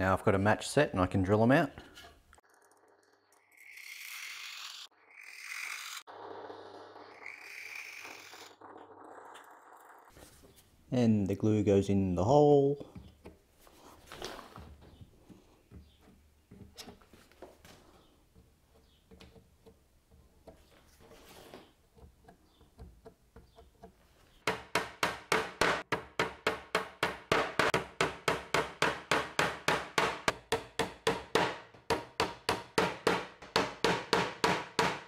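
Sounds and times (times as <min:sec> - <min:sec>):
hammer tapping wooden pins: 0:21.9 - 0:35.0.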